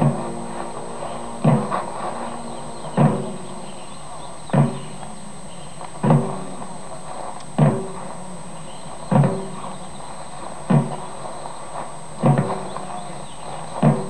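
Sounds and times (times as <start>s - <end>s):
drum beaten slowly: 0.0s - 5.4s.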